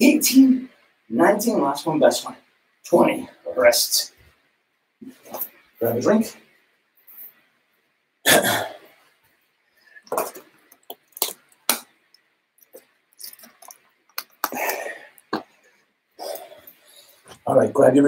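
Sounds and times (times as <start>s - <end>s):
heavy breathing: 14.4s - 17.4s.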